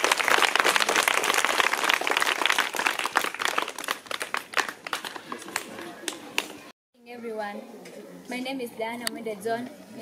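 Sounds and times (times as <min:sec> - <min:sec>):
children clapping: 0:00.0 - 0:06.6.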